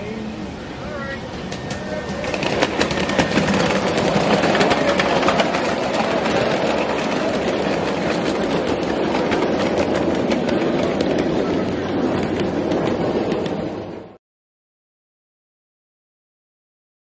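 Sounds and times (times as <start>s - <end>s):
miniature train running: 0.0s - 14.2s
wheels clattering over rail joints: 1.0s - 14.1s.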